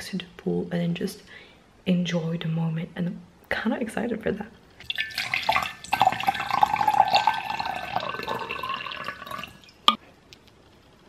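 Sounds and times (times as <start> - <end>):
water pouring into container: 4.8 - 9.8.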